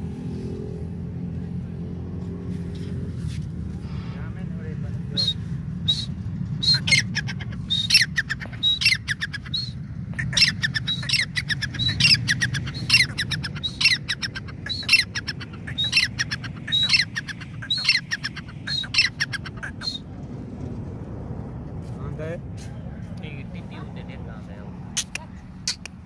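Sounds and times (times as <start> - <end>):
bird calling with clicking notes: 5.9 - 20.0, 25.0 - 26.0.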